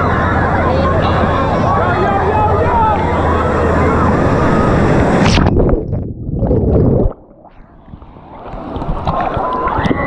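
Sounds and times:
wave breaking: 0.0 - 10.0
underwater gurgling and sloshing: 3.0 - 10.0.

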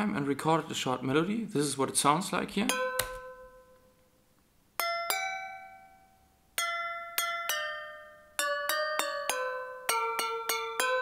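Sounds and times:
glassy bell melody: 2.7 - 4.0, 4.8 - 11.0.

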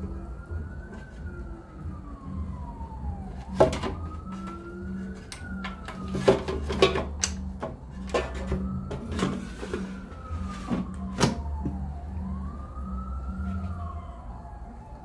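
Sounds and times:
siren wailing: 0.0 - 15.0
kitchen knocks and clatters: 6.1 - 9.4.

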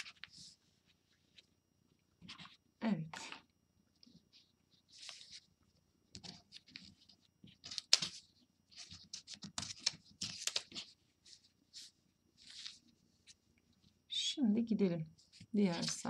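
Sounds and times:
tracing paper rustling: 4.0 - 5.5, 6.1 - 14.0, 15.2 - 16.0.

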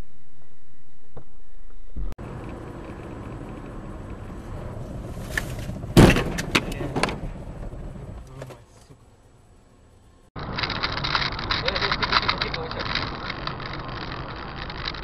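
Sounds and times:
car road noise: 0.0 - 15.0
vehicle collision impact: 4.8 - 8.9.

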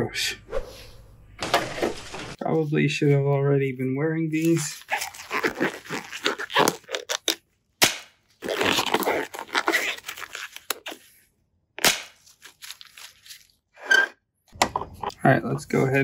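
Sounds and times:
rubber gloves rustling: 4.2 - 13.8.

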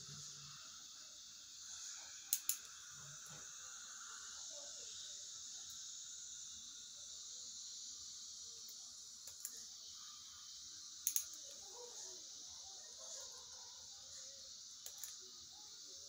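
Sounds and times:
steady high hiss: 0.0 - 16.0
dental instruments clicking: 2.3 - 2.8, 11.0 - 11.5, 14.8 - 15.2.

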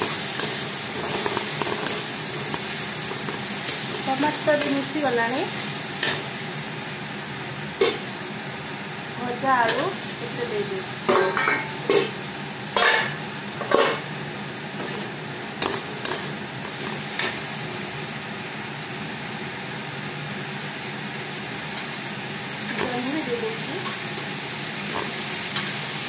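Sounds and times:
food sizzling in oil: 0.0 - 26.0
spatula scraping and knocking pan: 11.1 - 12.1, 12.8 - 14.1.

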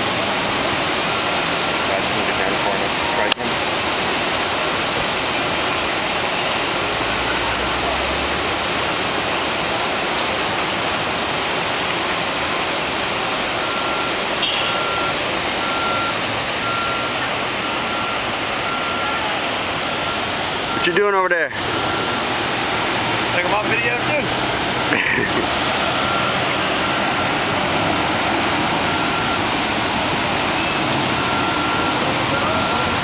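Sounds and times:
flowing creek water: 0.0 - 33.0
vehicle reversing beeper: 1.0 - 3.4, 13.6 - 22.3, 23.0 - 33.0.

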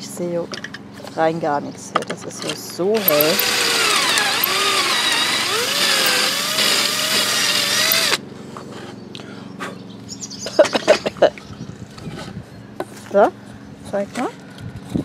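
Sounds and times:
cordless drill boring wood: 3.0 - 8.2.

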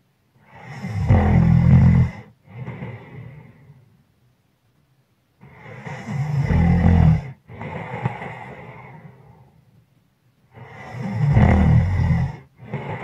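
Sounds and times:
person snoring: 0.4 - 3.8, 5.4 - 9.4, 10.5 - 13.0
soft breath: 0.4 - 4.0, 5.4 - 9.8, 12.0 - 13.0.

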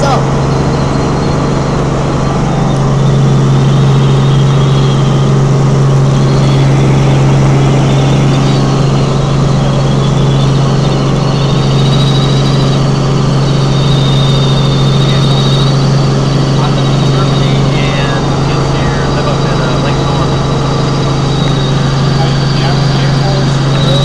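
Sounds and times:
faint high whine: 0.0 - 24.0
helicopter engine and rotor drone: 0.0 - 24.0.

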